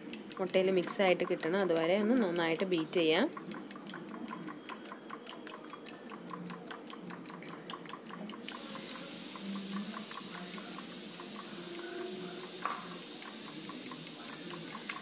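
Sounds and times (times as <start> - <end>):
fork clicking against a bowl: 0.0 - 15.0
steady hiss: 8.4 - 15.0.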